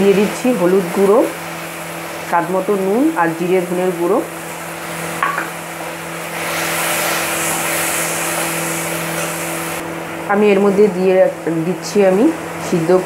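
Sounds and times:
masala sizzling: 0.0 - 13.0
spatula scraping pan: 6.3 - 9.7.

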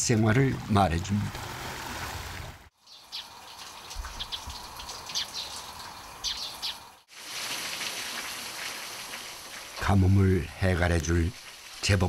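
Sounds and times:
birds chirping: 2.8 - 7.0
steady rain falling: 3.3 - 12.0.

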